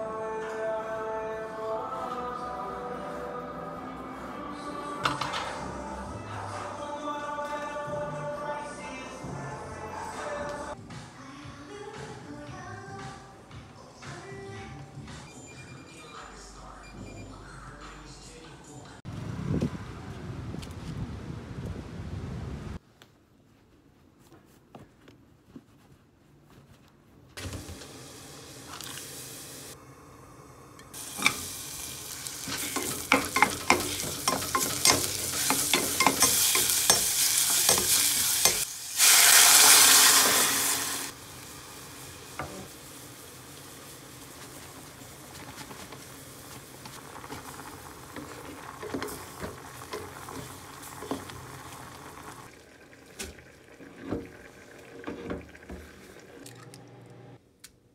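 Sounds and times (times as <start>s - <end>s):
vegetables sizzling in a pot: 27.4s - 29.8s, 30.5s - 56.1s
bubbling simmer: 44.6s - 57.1s.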